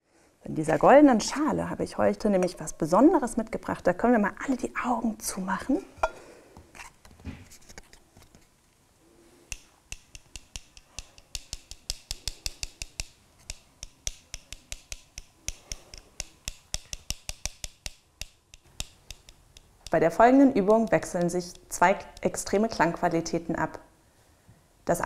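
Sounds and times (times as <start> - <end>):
castanets clicking: 9.5 - 23.0.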